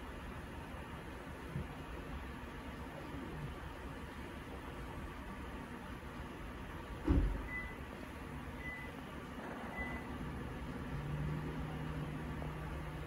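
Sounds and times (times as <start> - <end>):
low steady hum: 0.0 - 13.0
dull thump: 7.0 - 7.5.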